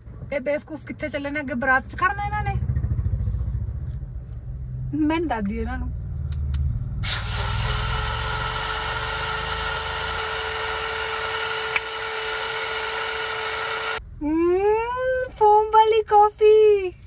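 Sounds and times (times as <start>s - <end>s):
blender motor whirring: 7.1s - 14.0s.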